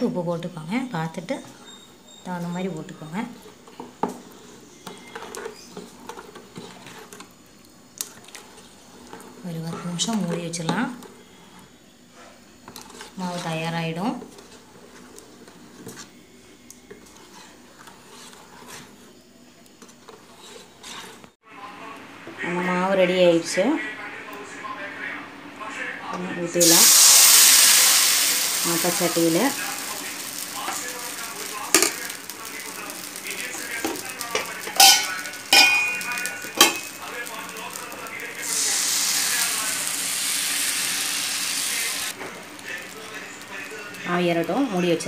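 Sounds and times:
spoon stirring batter in steel pot: 1.2s - 21.4s
batter sizzling in a pan: 26.6s - 45.0s
metallic cookware clanks: 34.4s - 36.0s, 36.6s - 36.9s.

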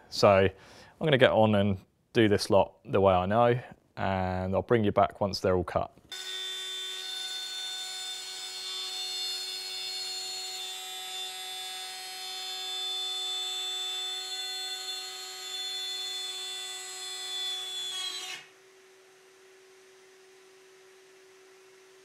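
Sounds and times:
router cutting wood: 6.1s - 22.0s.

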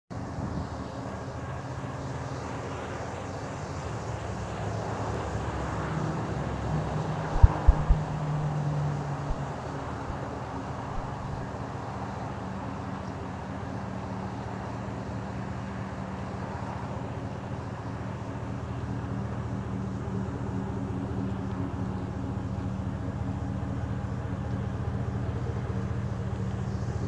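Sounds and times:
thumps on microphone: 7.3s - 10.2s, 10.9s - 11.4s.

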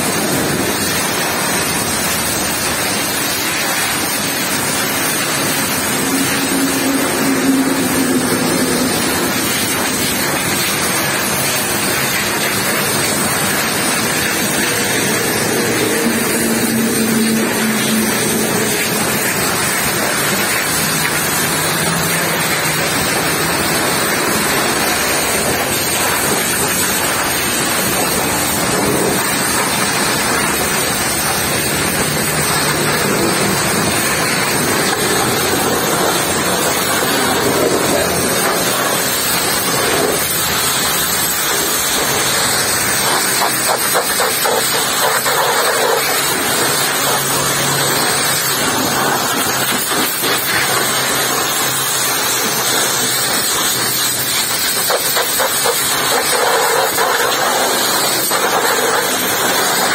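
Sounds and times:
pressure washer spraying: 0.0s - 59.9s
water splashing: 0.0s - 59.9s.

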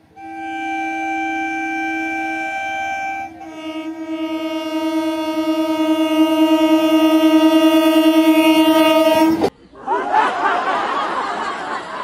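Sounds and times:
train horn blasts: 0.0s - 9.5s.

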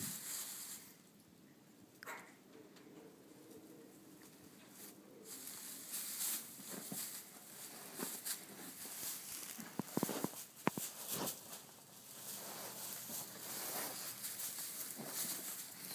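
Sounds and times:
straw and cloth rustling: 0.0s - 1.0s, 4.3s - 15.9s.

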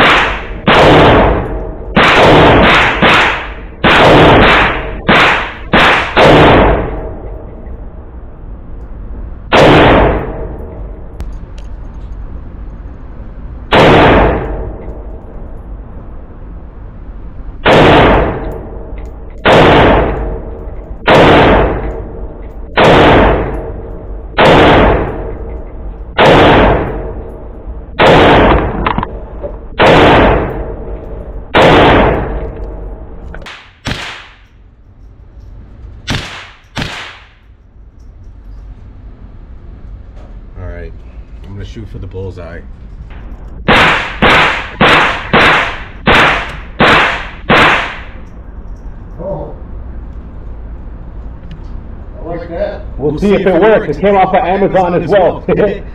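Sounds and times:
pistol gunshots ringing indoors: 0.0s - 11.4s, 13.7s - 15.7s, 17.5s - 38.6s, 43.2s - 49.1s.

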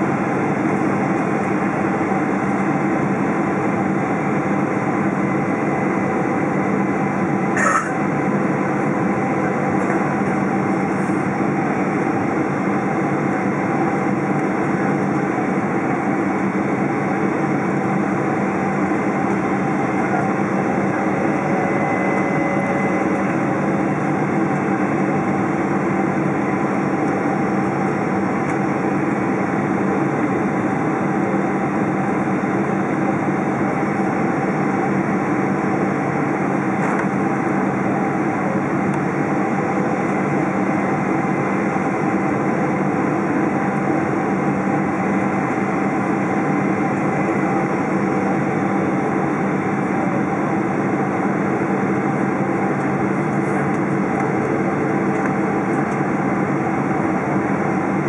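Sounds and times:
airplane engine and airflow noise: 0.0s - 58.0s
faint gliding tone: 20.9s - 23.1s.

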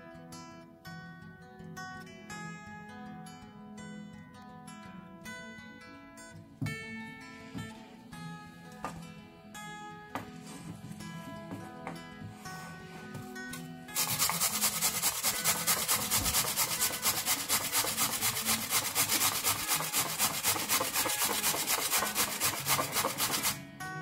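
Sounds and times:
soft acoustic guitar music: 0.0s - 14.4s, 19.8s - 24.0s
potato rasping on grater: 14.0s - 23.6s.

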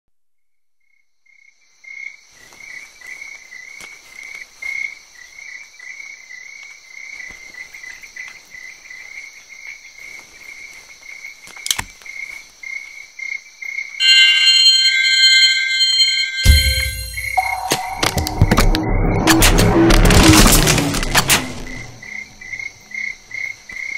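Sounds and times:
crickets chirping: 0.9s - 18.5s, 21.5s - 23.9s
music with high tones: 14.0s - 21.2s.

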